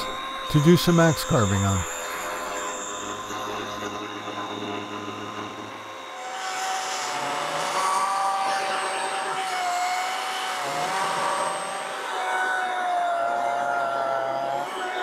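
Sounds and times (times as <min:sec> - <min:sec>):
chainsaw cutting log: 0:06.2 - 0:13.5.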